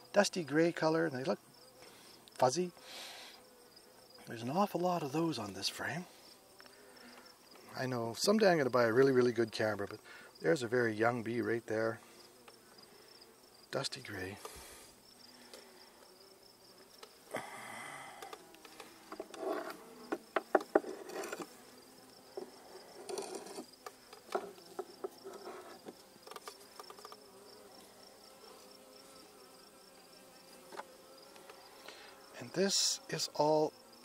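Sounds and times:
bees buzzing: 0:00.0 - 0:34.0
cricket trilling: 0:01.1 - 0:08.8, 0:12.1 - 0:34.0
clicks and scrapes of hive tool: 0:12.4 - 0:12.6, 0:14.4 - 0:14.6, 0:18.1 - 0:29.4, 0:30.5 - 0:32.1.

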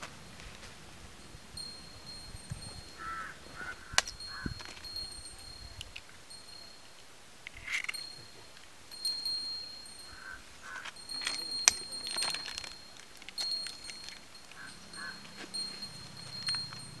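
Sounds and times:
high tinkling chime tones: 0:01.2 - 0:07.0, 0:07.8 - 0:17.0
short calls: 0:07.9 - 0:17.0.

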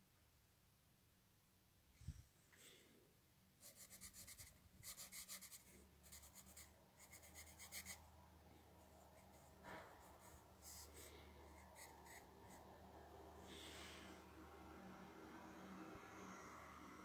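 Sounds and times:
pen scratching on paper: 0:03.6 - 0:08.0, 0:09.1 - 0:12.7.

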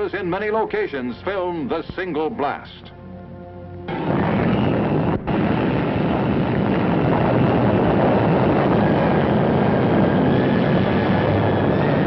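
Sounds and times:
explosion rumble: 0:03.9 - 0:12.0.

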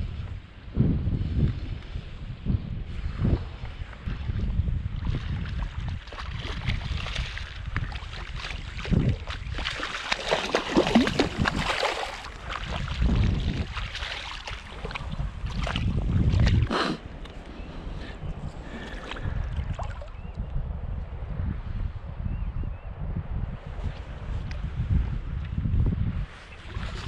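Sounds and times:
wind buffeting microphone: 0:00.0 - 0:27.0
water splashing: 0:05.1 - 0:17.4.

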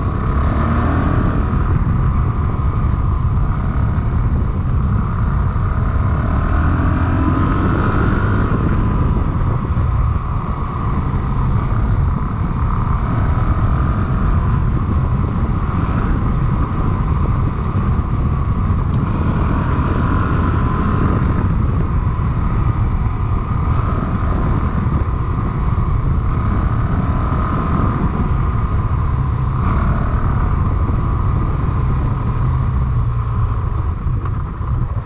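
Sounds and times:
dirt bike engine running: 0:00.0 - 0:35.0.

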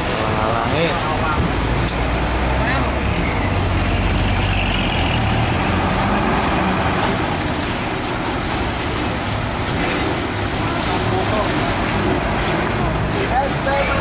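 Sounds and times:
road traffic noise: 0:00.0 - 0:14.0
diesel truck engine pulling away: 0:01.5 - 0:08.5.

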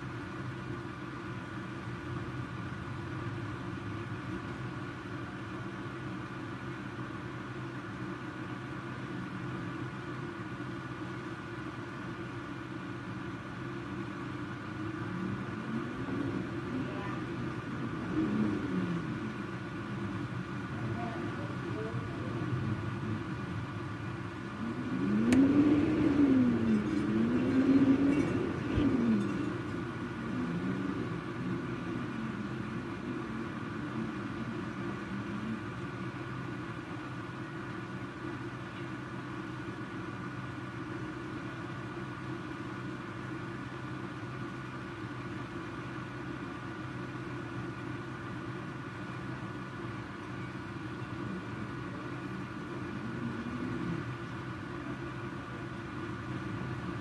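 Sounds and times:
faint steady hum: 0:00.0 - 0:57.0
steady rushing background noise: 0:13.3 - 0:38.5
vehicle engine passing: 0:14.9 - 0:36.2.

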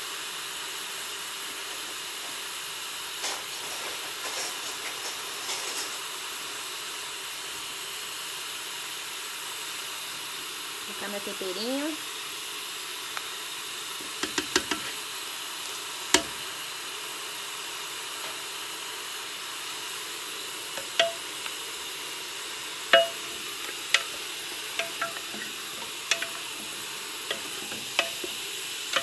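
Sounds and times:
meat and onions sizzling: 0:00.0 - 0:29.0
spoon tapping pot: 0:14.2 - 0:14.9, 0:16.1 - 0:16.4, 0:20.8 - 0:21.6, 0:22.9 - 0:29.0
wooden spoon knocking: 0:20.8 - 0:21.2, 0:22.9 - 0:29.0.

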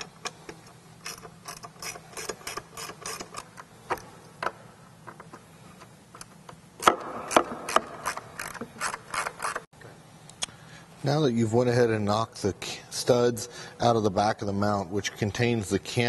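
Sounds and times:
hand ratchet clicking: 0:00.0 - 0:03.6, 0:06.8 - 0:09.6.

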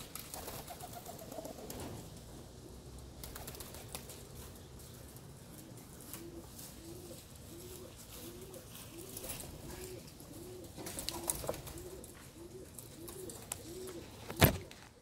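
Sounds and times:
pigeon cooing: 0:00.4 - 0:01.9, 0:05.5 - 0:15.0.

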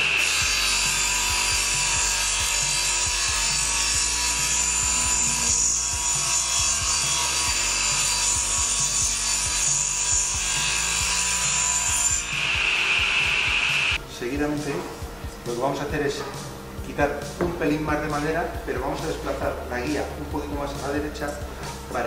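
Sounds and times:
saw blade whining: 0:00.0 - 0:14.0
saw cutting wood hiss: 0:00.0 - 0:14.0.

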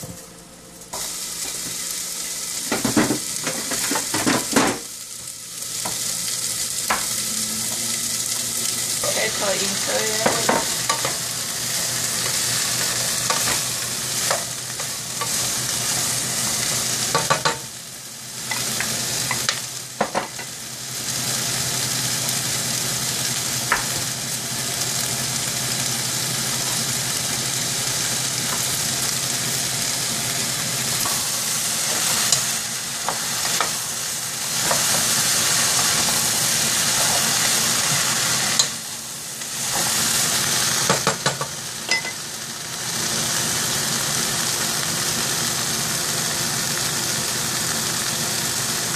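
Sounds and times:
onion sizzling in hot oil: 0:00.0 - 0:48.9
wooden spoon knocking on pan: 0:10.2 - 0:11.2, 0:40.9 - 0:42.1.

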